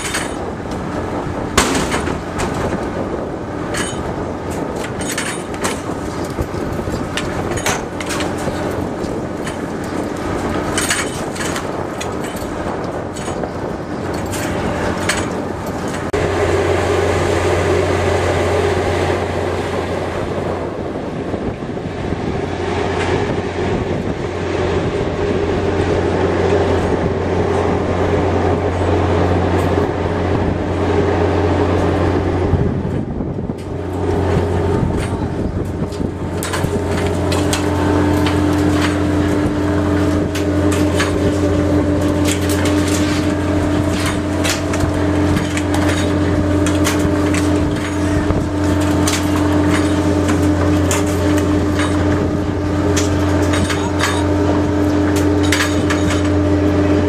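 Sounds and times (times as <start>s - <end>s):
gear clicks and knocks: 0.0s - 16.2s, 32.9s - 56.9s
boat engine hum: 0.0s - 57.0s
lower machinery whine: 0.0s - 57.0s
machinery whine: 0.0s - 57.0s.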